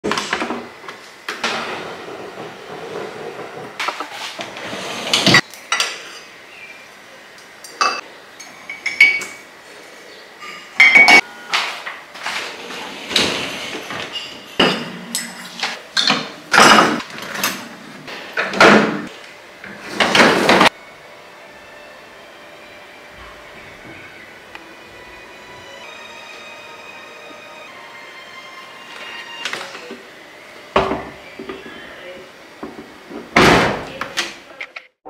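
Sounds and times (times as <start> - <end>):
dishwasher racks rattling: 1.3 - 5.4, 12.2 - 19.1
dishes and cutlery clinking: 5.1 - 6.3, 7.6 - 9.5, 10.4 - 17.8.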